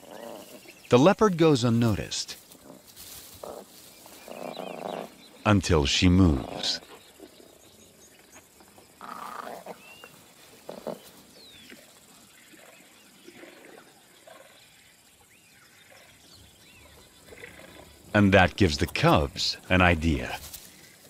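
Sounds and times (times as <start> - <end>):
birds chirping: 0.0 - 21.0
quiet bush ambience: 0.0 - 21.0
big cat growling: 6.2 - 6.9, 16.9 - 19.4.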